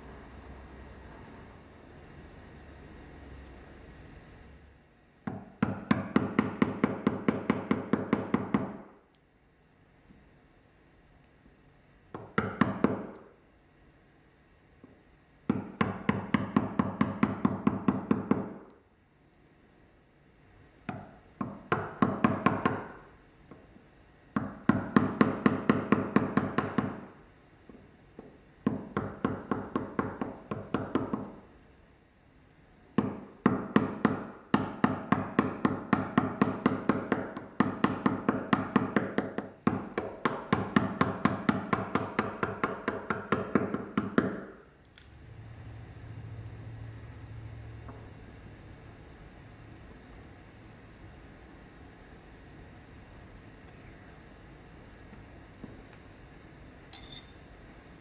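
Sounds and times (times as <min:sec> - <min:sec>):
hammer tapping on chisel: 0:05.2 - 0:09.0, 0:12.1 - 0:13.3, 0:14.8 - 0:18.8, 0:20.9 - 0:23.6, 0:24.4 - 0:27.1, 0:27.7 - 0:31.4, 0:33.0 - 0:44.6, 0:56.9 - 0:57.4.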